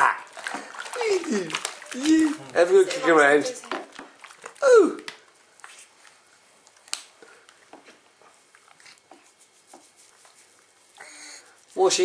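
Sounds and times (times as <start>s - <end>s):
bath water splashing: 0.0s - 5.4s.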